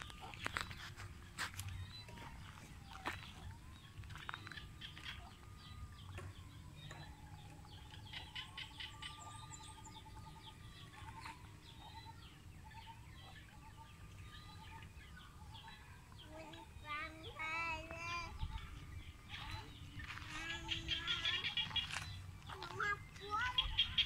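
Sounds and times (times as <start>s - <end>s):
bird chirps: 0.0s - 24.0s.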